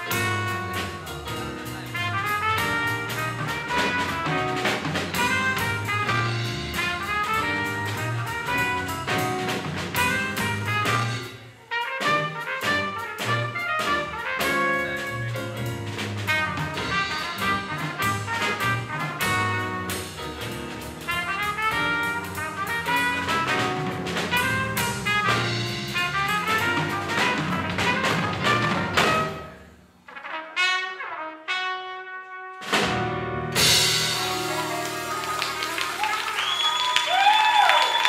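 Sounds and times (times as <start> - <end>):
electric bass: 0.0 - 11.4, 12.7 - 29.6
trumpet melody: 0.0 - 36.4
drum kit: 0.0 - 38.0
electric keyboard: 33.6 - 36.1.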